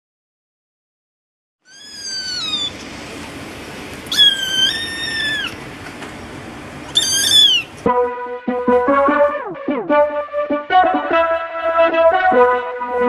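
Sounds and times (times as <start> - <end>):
kittens meowing: 1.7 - 2.8, 4.1 - 5.6, 6.9 - 7.8
music: 7.9 - 13.0.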